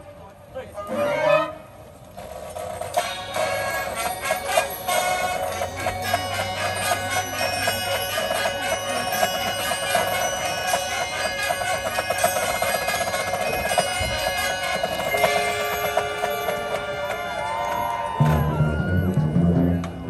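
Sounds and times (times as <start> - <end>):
marching band playing: 2.3 - 20.0.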